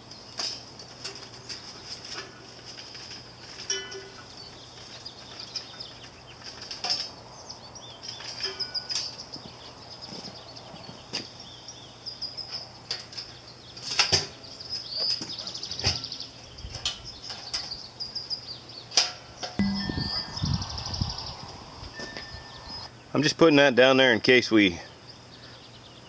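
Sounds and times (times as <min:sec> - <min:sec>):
small birds chirping: 0:04.1 - 0:19.0, 0:19.6 - 0:23.4, 0:24.8 - 0:26.0.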